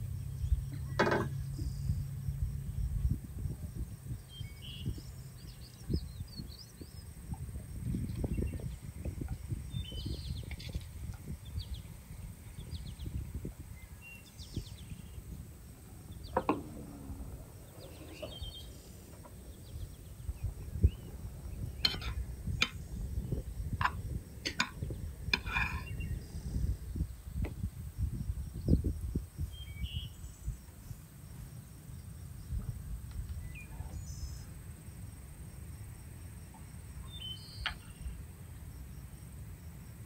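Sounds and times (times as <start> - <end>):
low outdoor rumble: 0.0 - 40.0
bird chirps: 4.1 - 7.2, 7.9 - 10.8, 11.4 - 15.4, 16.0 - 23.7, 24.6 - 27.4, 28.6 - 30.6, 37.0 - 38.2
metal spoon scraping a plate: 21.8 - 22.8, 23.8 - 26.0.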